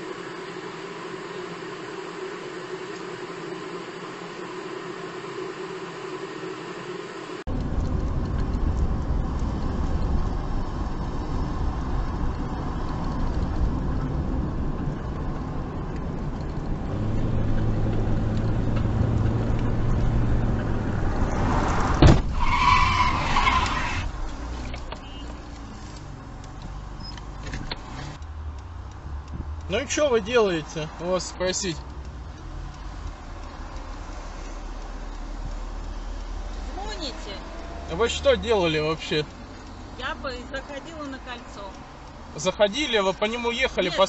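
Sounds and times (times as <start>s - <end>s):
car engine and road rumble: 0.0s - 44.0s
car crash bang: 21.9s - 22.5s.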